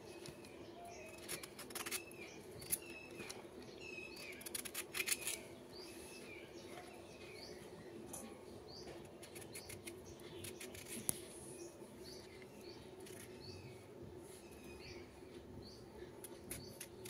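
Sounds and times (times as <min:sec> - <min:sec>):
small bird chirping: 0:00.0 - 0:17.0
kitchen knife peeling pumpkin: 0:01.0 - 0:03.4, 0:04.0 - 0:05.5, 0:09.0 - 0:11.3, 0:16.2 - 0:17.0.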